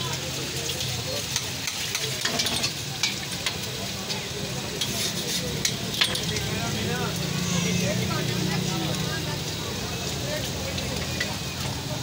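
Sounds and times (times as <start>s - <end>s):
egg sizzling on a griddle: 0.0s - 12.0s
metal spatula scraping griddle: 4.8s - 6.6s.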